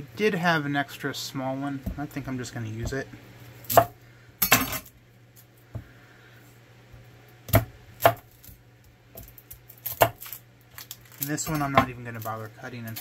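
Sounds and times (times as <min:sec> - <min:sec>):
knife chopping on wooden board: 0:07.5 - 0:08.3.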